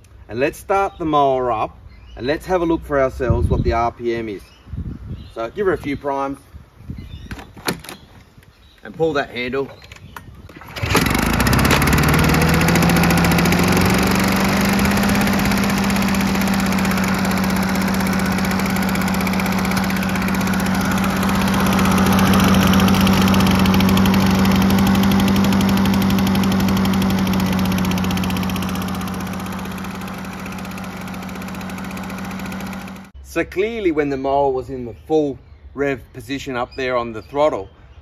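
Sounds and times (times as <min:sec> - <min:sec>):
lawn mower engine running: 0:10.5 - 0:33.2.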